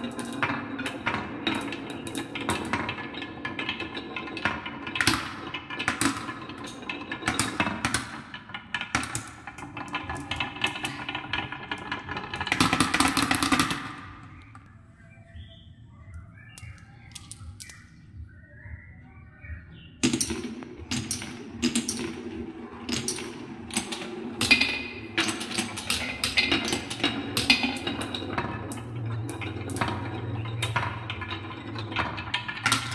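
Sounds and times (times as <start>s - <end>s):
marbles rolling on wooden tracks: 0.0s - 14.6s, 20.0s - 32.9s
marbles clicking against wood: 16.6s - 17.9s.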